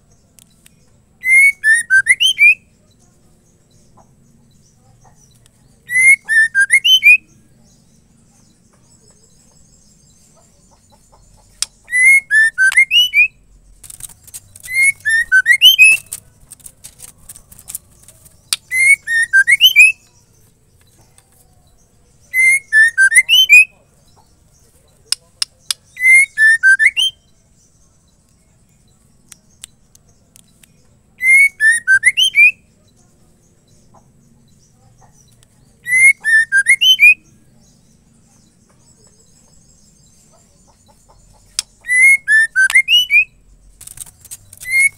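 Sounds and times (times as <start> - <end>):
bird whistled song: 1.2 - 2.8, 5.8 - 7.4, 11.4 - 16.7, 17.3 - 20.2, 22.2 - 23.8, 25.1 - 27.4, 31.2 - 32.8, 35.8 - 37.3, 40.8 - 44.9
sharp clicks: 13.8 - 19.0, 43.7 - 44.9.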